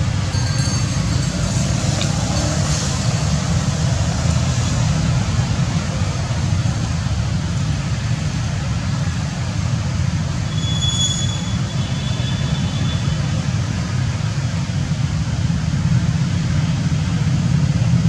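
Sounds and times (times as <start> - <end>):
loud rumbling noise: 0.0 - 10.6.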